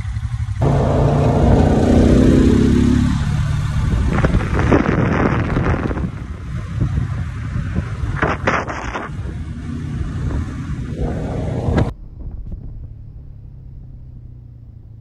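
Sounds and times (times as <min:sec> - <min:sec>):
atv engine rumbling: 0:00.0 - 0:15.0.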